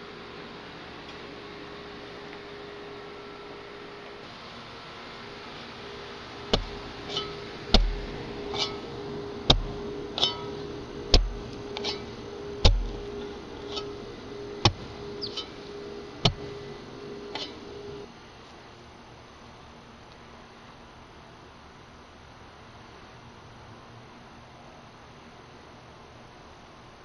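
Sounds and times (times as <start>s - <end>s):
steady hum: 0.0s - 23.2s
slow footsteps: 5.6s - 18.6s
sharp knock with low thump: 7.7s - 8.1s, 11.1s - 11.4s.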